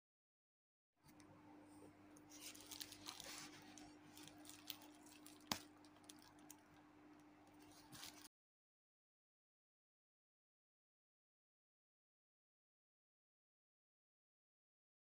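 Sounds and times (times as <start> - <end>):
steady low hum: 1.1 - 8.3
plastic packaging crinkling: 2.2 - 8.3.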